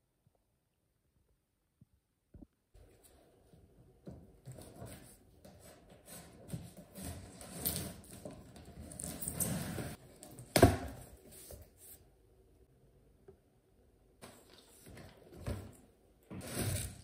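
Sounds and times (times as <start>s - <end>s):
objects being handled: 4.0s - 12.0s.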